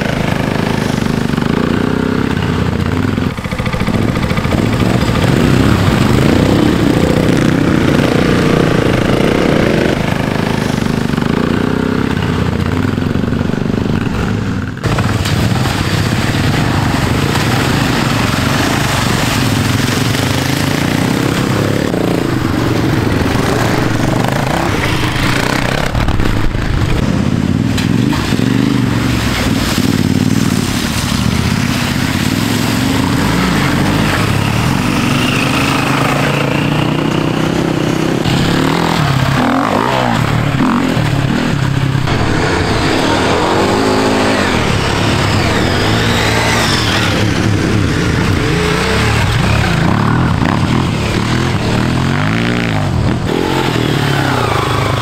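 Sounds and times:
off-road motorcycle engines revving: 0.0s - 55.0s.

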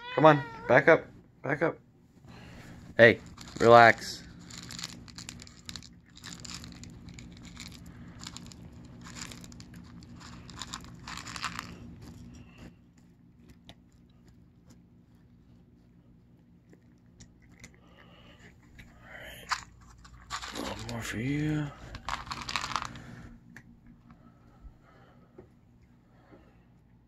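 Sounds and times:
cats crunching dry kibble: 2.3s - 27.0s.

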